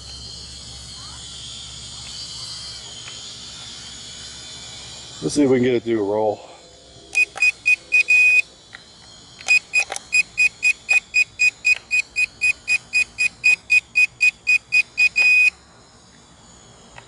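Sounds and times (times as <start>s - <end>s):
remote controller beeping: 7.1s - 8.4s.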